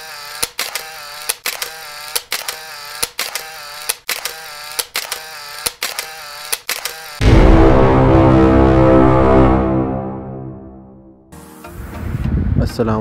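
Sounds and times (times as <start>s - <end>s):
camera shutter click and whir: 0.0s - 7.2s.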